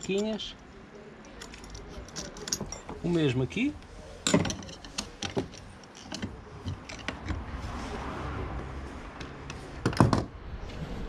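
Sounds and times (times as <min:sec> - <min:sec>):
small metal clicks and knocks: 0:00.0 - 0:03.1, 0:04.2 - 0:07.4.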